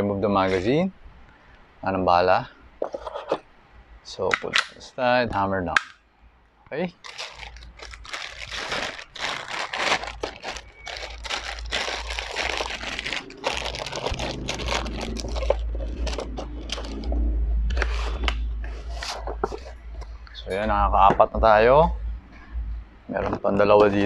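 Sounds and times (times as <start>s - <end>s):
plastic bag crinkling: 6.9s - 17.2s
low rumble: 7.0s - 24.0s.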